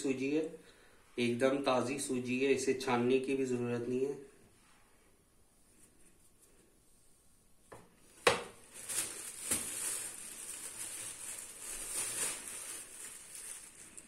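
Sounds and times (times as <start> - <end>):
plastic bag crinkling: 8.2 - 14.0.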